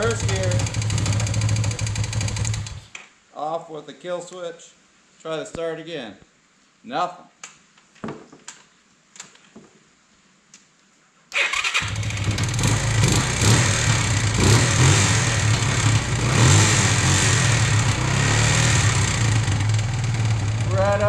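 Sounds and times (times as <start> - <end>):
atv engine running: 0.0 - 2.8, 11.9 - 21.0
electric starter cranking: 0.0 - 2.8, 11.4 - 13.6.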